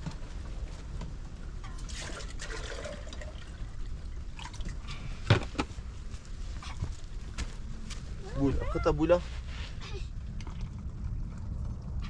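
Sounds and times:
water trickling and splashing: 0:01.7 - 0:05.2.

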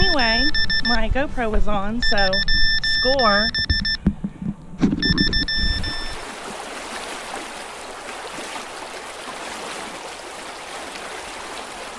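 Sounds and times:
electronic beeps: 0:00.0 - 0:01.1, 0:02.0 - 0:04.0, 0:04.9 - 0:06.2
trickling water: 0:05.0 - 0:11.9.

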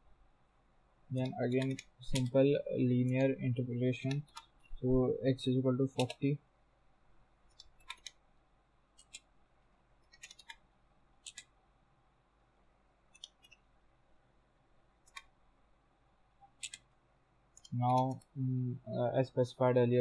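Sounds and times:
computer keyboard keystrokes: 0:01.2 - 0:02.4, 0:05.9 - 0:06.2, 0:07.6 - 0:08.2, 0:10.1 - 0:10.6, 0:11.2 - 0:11.5.

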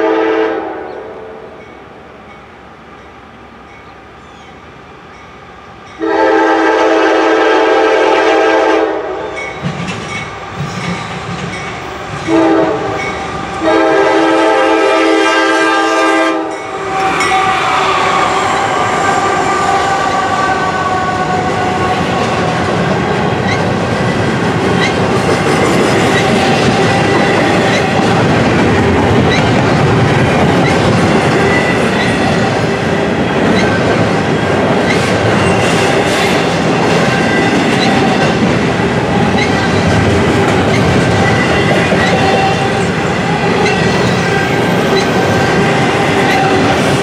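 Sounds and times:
train air horn blasts: 0:00.0 - 0:01.6, 0:06.0 - 0:09.4, 0:12.2 - 0:23.2, 0:41.3 - 0:43.0
locomotive passing: 0:01.5 - 0:47.0
train wheels clickety-clack: 0:09.4 - 0:14.0, 0:21.0 - 0:47.0.

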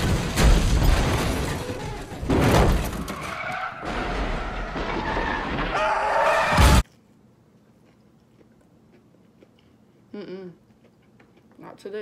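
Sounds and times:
glass shattering: 0:00.0 - 0:05.4
heavy crash impacts: 0:00.0 - 0:06.8
tyres skidding: 0:00.1 - 0:06.8.

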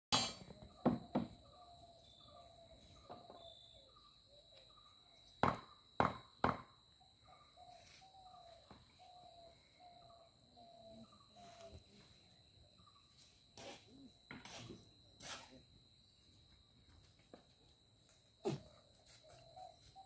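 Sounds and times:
sharp knocks on wood: 0:00.8 - 0:01.4, 0:05.4 - 0:06.7.

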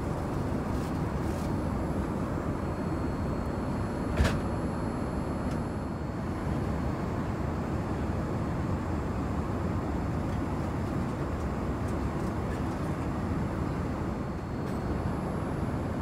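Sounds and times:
airliner cabin rumble: 0:00.0 - 0:16.0.

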